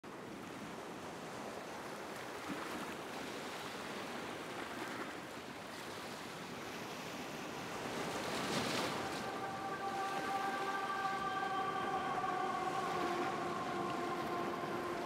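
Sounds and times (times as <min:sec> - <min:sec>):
water rushing past boat hull: 0:06.4 - 0:15.0.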